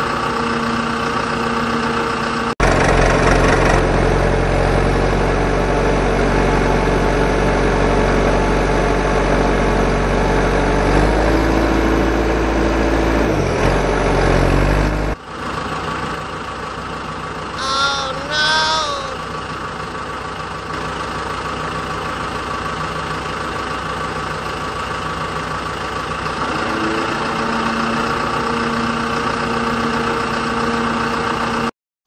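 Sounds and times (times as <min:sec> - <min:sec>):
engine idling: 0:00.0 - 0:10.4, 0:15.2 - 0:17.6, 0:19.1 - 0:26.5.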